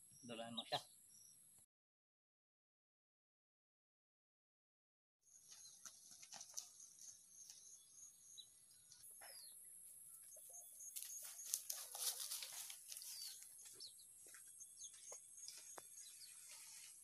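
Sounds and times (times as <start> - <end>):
bird chirps: 0.0 - 1.7, 5.2 - 17.0.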